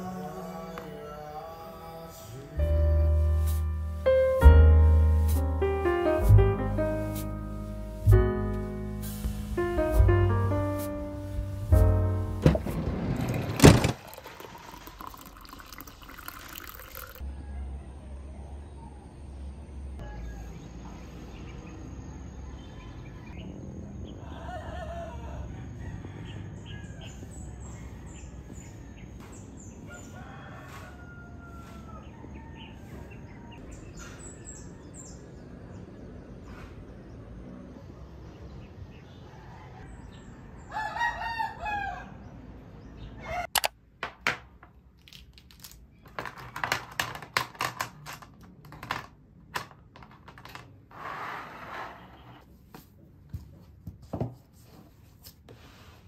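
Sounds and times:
rooster crowing: 20.0 - 20.6, 24.0 - 27.3, 29.8 - 33.6, 39.2 - 42.3
objects clicking on a desk: 45.0 - 50.7.

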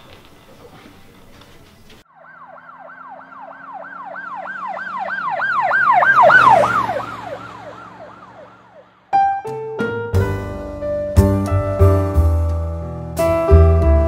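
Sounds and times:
emergency siren yelping: 2.0 - 9.2.

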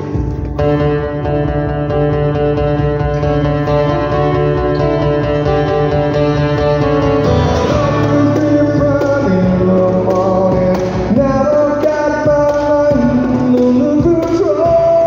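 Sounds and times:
cajon beating: 0.0 - 15.0
strummed acoustic guitar: 0.0 - 15.0
man singing: 7.4 - 15.0.

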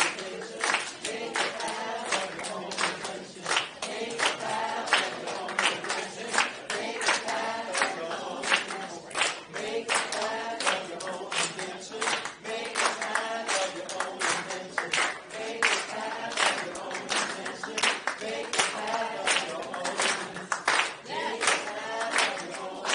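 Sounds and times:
hand clapping: 0.0 - 22.9
voices singing together: 0.0 - 22.9.

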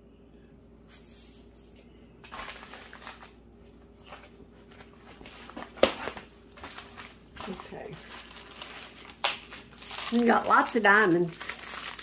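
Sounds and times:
packaging rustling and crinkling: 2.2 - 12.0.

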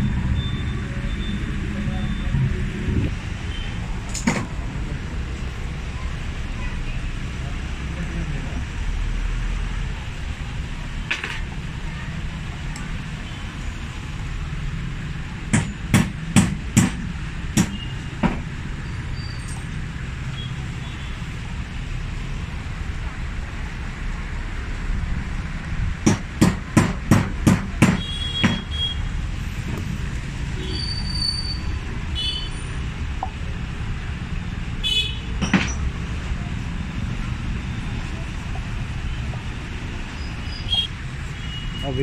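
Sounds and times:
sharp hammer-like taps: 15.5 - 18.4, 26.0 - 28.7.

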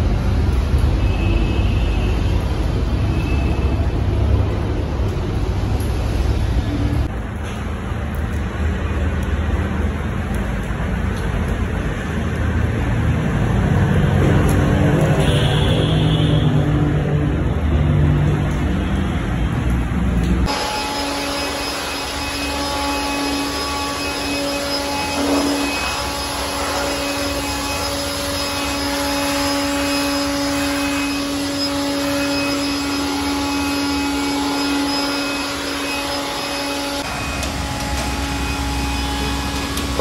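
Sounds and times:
electric blower motor whining: 20.5 - 40.0.

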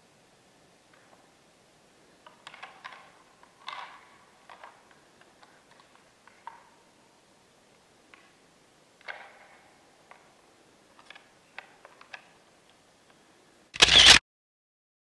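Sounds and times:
moose antlers clacking: 2.2 - 6.8.

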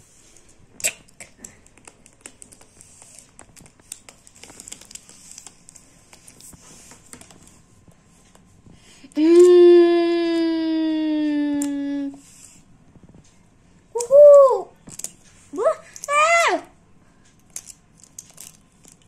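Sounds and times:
plastic toys clicking together: 0.8 - 5.6, 17.3 - 19.0.

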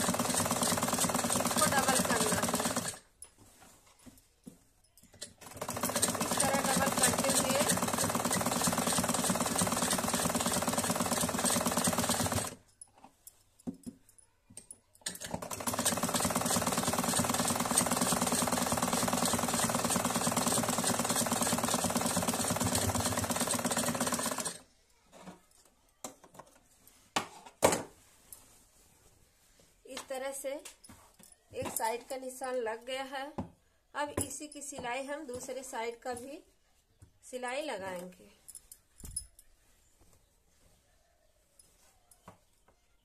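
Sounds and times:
sewing machine stitching: 0.0 - 3.0, 5.2 - 12.6, 15.0 - 24.6.

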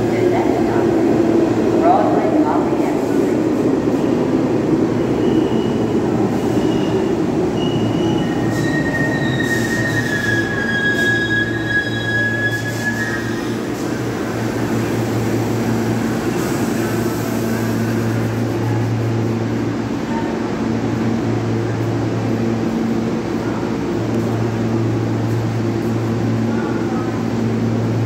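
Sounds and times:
standing train humming: 0.0 - 28.0
subway train rumble: 0.0 - 28.0
high-pitched wheel squeals: 7.6 - 13.6.

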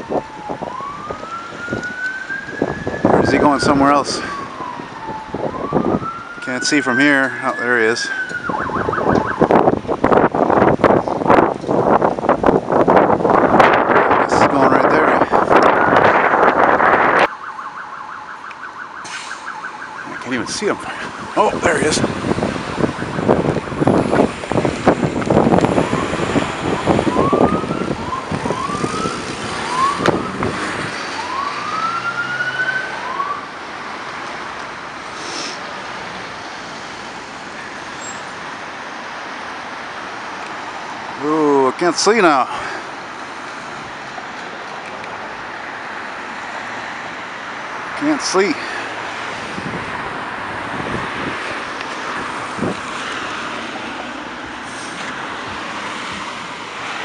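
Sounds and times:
emergency vehicle siren sweeps: 0.0 - 12.0, 13.0 - 57.0
cars driving past: 0.0 - 57.0
hiss of tyres and engines: 19.0 - 19.6, 34.8 - 38.5, 48.4 - 57.0.

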